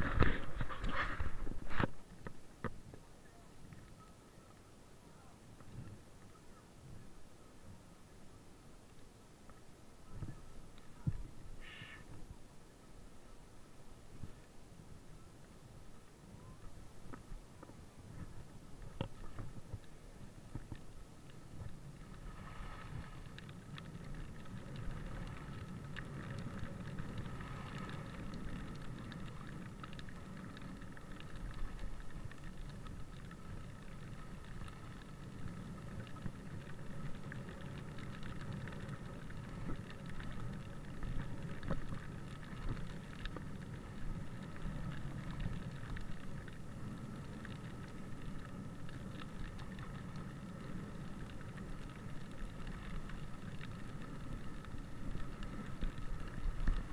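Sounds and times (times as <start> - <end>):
skis rumbling on snow: 0.0 - 2.1, 17.4 - 56.9
small clicks and scrapes: 0.0 - 4.6, 16.6 - 56.9.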